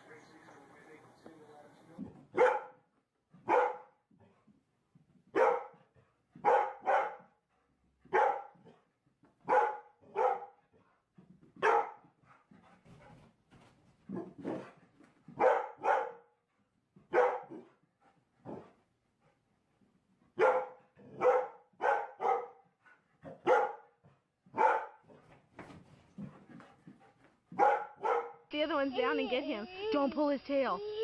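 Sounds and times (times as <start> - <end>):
dog barking: 2.3 - 4.0, 5.3 - 5.8, 6.4 - 7.4, 8.1 - 8.8, 9.4 - 10.6, 11.6 - 12.0, 15.4 - 16.4, 17.1 - 17.7, 18.4 - 18.7, 20.4 - 25.2, 27.5 - 28.5.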